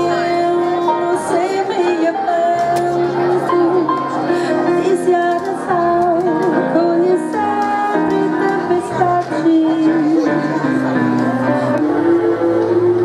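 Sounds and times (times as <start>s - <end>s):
wavering melody with held notes: 0.0s - 13.0s.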